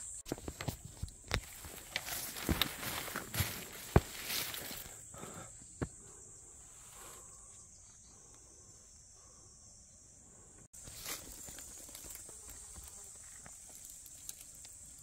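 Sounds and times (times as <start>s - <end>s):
insects buzzing: 0.0s - 15.0s
faint footstep: 0.3s - 4.8s.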